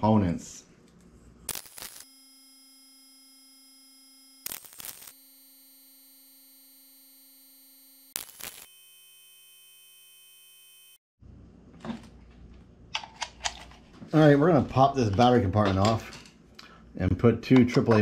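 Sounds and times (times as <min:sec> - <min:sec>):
faint electronic buzzing tone: 0:01.5 - 0:11.0.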